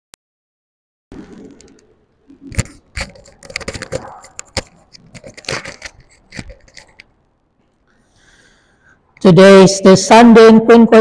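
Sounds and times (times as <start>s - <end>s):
handling clicks and rustling: 1.5s - 7.9s.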